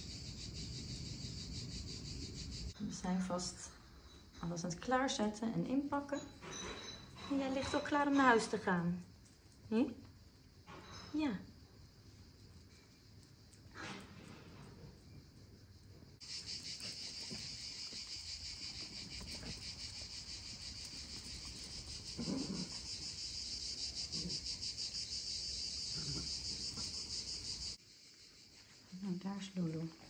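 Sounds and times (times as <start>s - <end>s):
insects shrilling in chorus: 0.0s - 2.8s, 16.2s - 29.7s.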